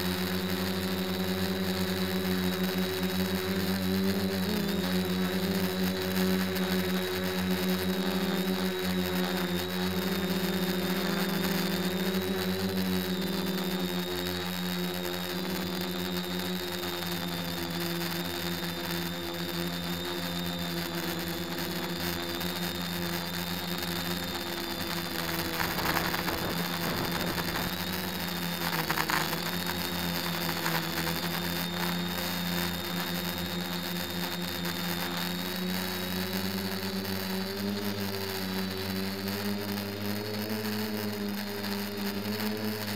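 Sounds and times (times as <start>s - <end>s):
drone propellers whirring: 0.0s - 42.9s.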